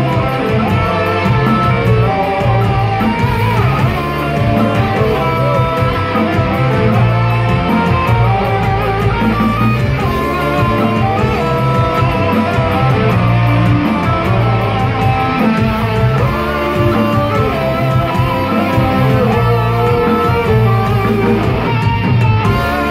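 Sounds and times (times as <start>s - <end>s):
live rock band playing: 0.0s - 22.9s.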